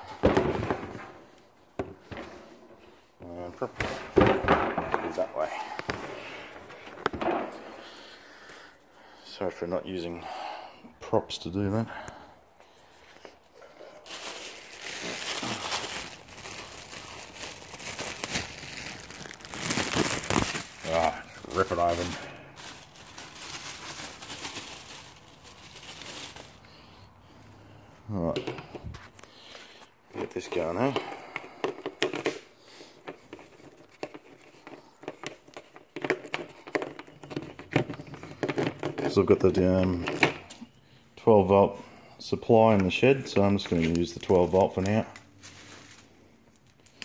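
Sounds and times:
plastic packaging crinkling: 13.0s - 27.1s, 42.8s - 47.0s.

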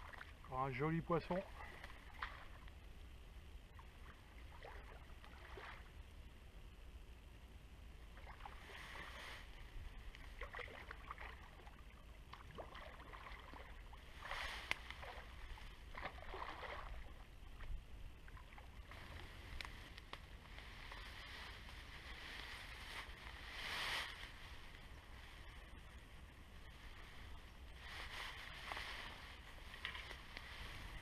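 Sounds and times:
low steady rumble: 0.0s - 31.0s
fish splashing in water: 10.2s - 17.3s.

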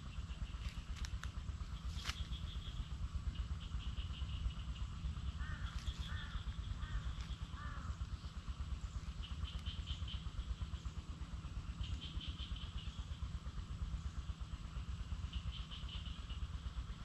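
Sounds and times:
bird calling: 0.0s - 10.9s, 15.2s - 17.0s.

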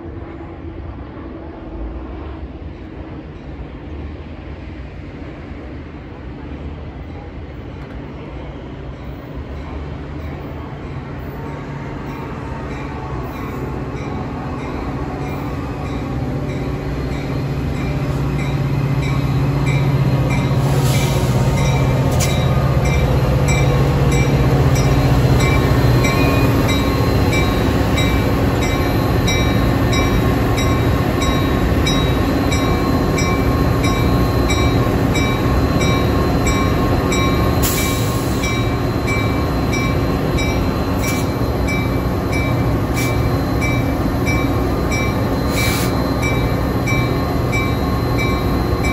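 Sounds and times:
diesel locomotive engine: 0.0s - 48.9s
brief air hisses: 20.6s - 21.5s, 37.6s - 38.6s, 45.5s - 46.0s.

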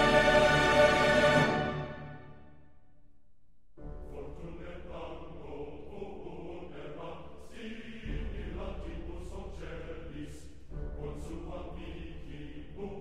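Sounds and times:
choir chanting: 0.0s - 2.4s, 4.1s - 13.0s.

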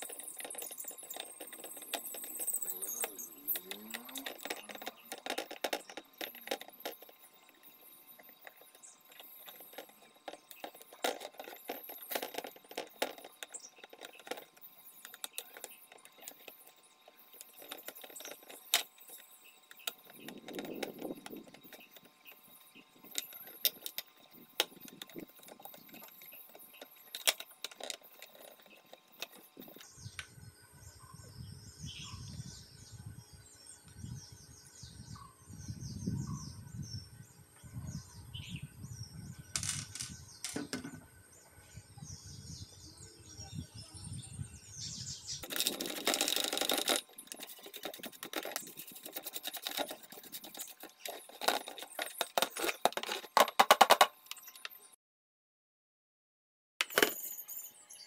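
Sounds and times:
clicks and knocks of electronic parts: 0.0s - 30.3s, 39.6s - 41.1s, 45.4s - 54.8s, 56.8s - 57.3s.

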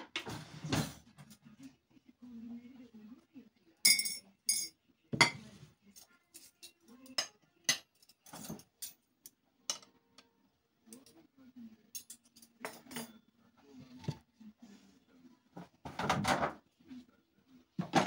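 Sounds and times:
tea glasses clinking: 3.9s - 4.7s.

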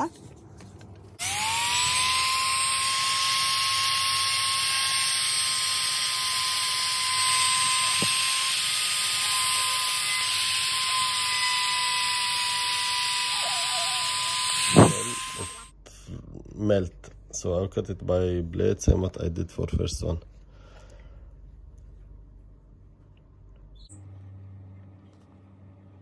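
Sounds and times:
rotary tool whining: 1.2s - 15.7s.

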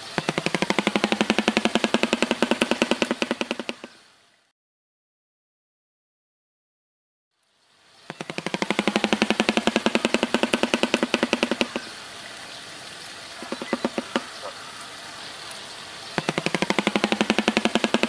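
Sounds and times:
bird clattering its bill: 0.2s - 4.0s, 8.1s - 12.0s, 13.4s - 14.5s, 16.2s - 18.0s.

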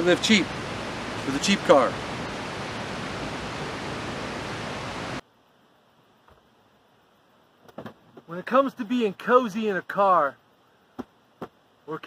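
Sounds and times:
steady outdoor rushing noise: 0.0s - 5.2s.

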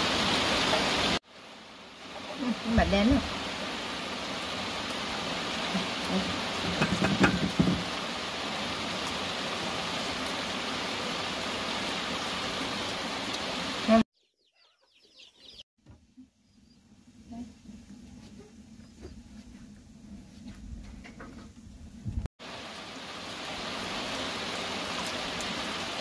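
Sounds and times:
rushing hiss: 22.4s - 26.0s.

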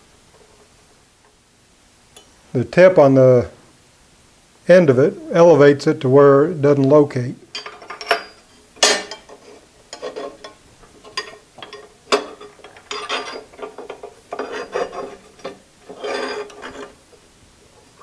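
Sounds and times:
metal clinks: 7.5s - 16.9s
metal scraping and rattling: 7.6s - 18.0s.

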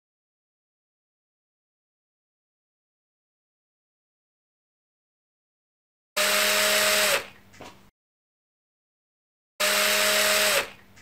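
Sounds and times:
electric screwdriver running: 6.2s - 7.4s, 9.6s - 10.8s.

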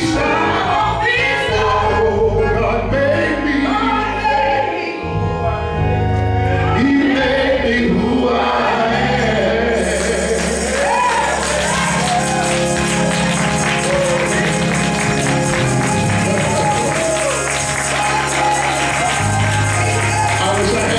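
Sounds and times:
man singing into a microphone: 0.0s - 4.1s, 20.4s - 20.9s
gospel band accompaniment: 0.0s - 20.9s
jingling shimmer: 9.7s - 20.9s
hand clapping: 10.1s - 20.9s.

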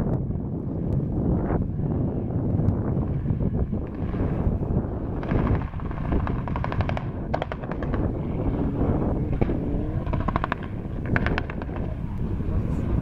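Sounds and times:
wind buffeting microphone: 0.0s - 13.0s
exhaust crackling pops: 3.7s - 12.3s.

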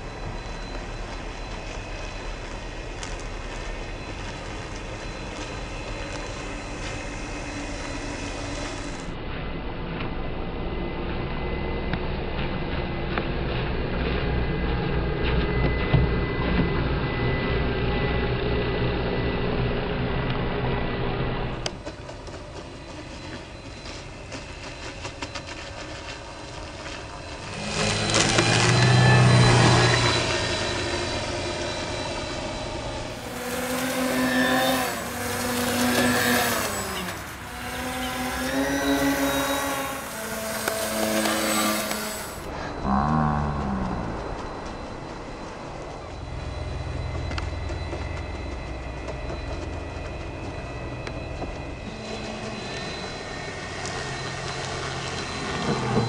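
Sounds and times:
model boat motors whining: 0.0s - 9.2s, 15.4s - 56.0s
low rumble: 41.4s - 55.6s.

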